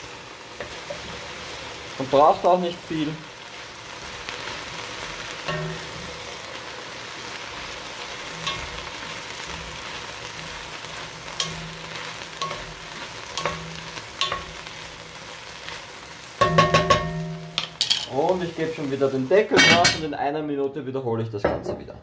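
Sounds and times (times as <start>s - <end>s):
onions sizzling in a pot: 0.0s - 20.4s
cookware clanking: 5.5s - 6.1s, 8.4s - 8.9s, 11.4s - 14.6s, 16.4s - 18.2s, 19.6s - 20.1s.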